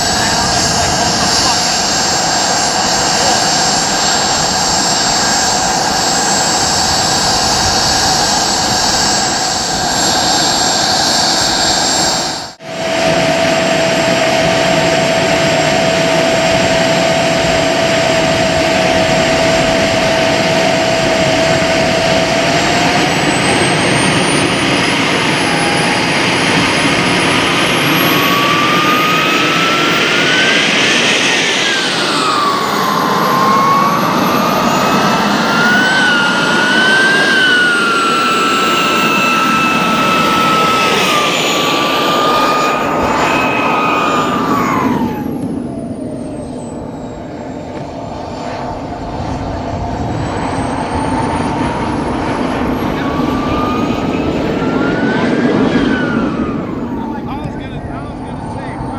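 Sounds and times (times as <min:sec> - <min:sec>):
small jet turbine whining: 0:00.0 - 0:58.9.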